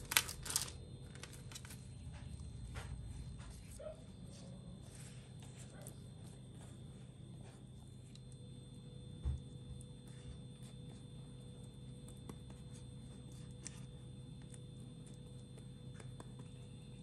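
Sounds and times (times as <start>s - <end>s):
low hum: 0.0s - 17.0s
pastry brush tapping dough: 10.6s - 17.0s.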